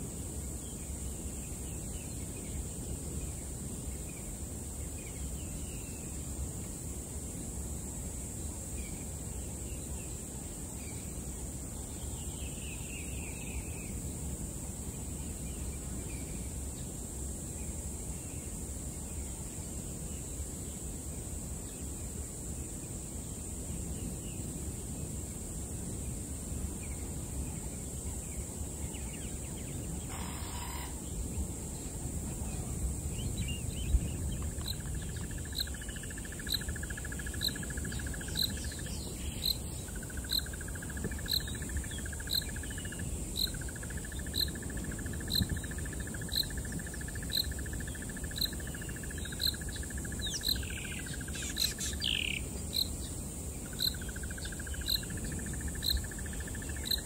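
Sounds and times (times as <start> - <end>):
high insect drone: 0.0 - 57.0
pulsed insect trill: 0.0 - 57.0
low wind rumble: 22.0 - 51.2.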